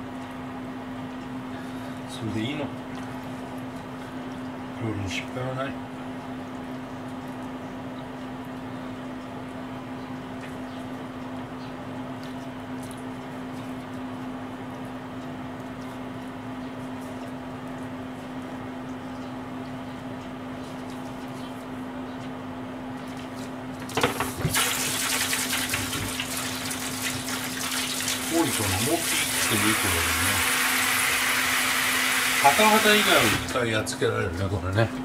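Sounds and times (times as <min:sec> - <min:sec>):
low mechanical hum: 0:00.0 - 0:35.0
tap water running into sink: 0:23.8 - 0:33.6.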